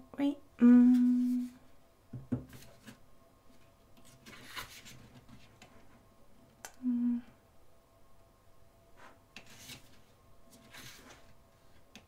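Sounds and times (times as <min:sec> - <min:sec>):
faint rubbing of pages: 0:02.5 - 0:06.0, 0:09.0 - 0:11.8.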